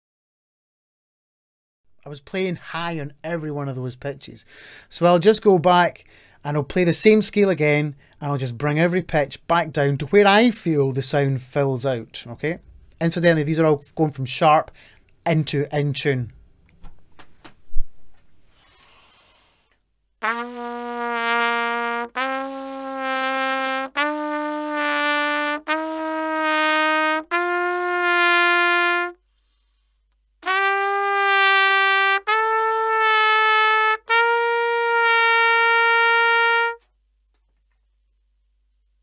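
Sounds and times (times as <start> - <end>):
trumpet playing held notes: 20.2 - 29.2, 30.4 - 36.9.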